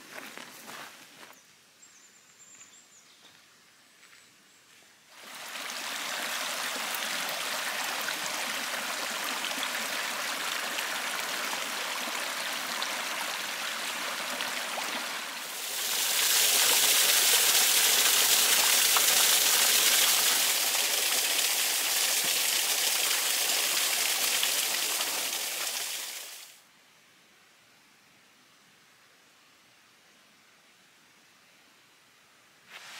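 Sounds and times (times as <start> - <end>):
waterfall splashing over rocks: 5.2 - 26.6.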